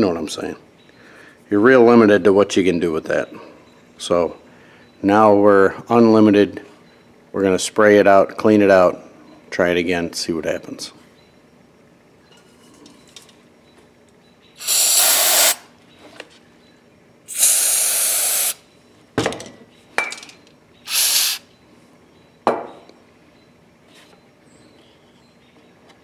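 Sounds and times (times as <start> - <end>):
aerosol spray hissing: 14.6 - 15.7, 17.3 - 18.6, 20.9 - 21.4.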